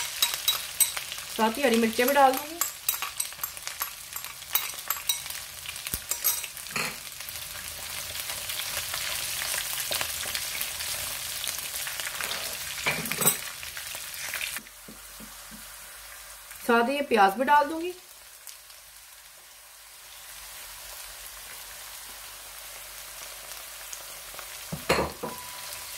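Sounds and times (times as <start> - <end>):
food sizzling in hot oil: 0.0 - 25.9.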